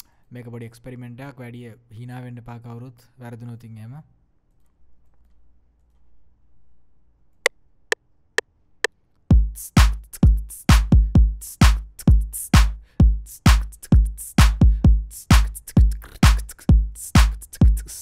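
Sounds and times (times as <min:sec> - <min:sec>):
electronic drum loop: 0:09.3 - 0:18.0.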